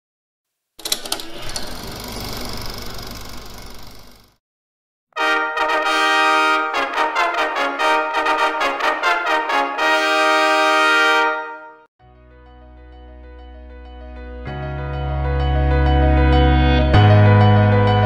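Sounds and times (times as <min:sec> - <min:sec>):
brass fanfare: 0:05.2 - 0:11.9.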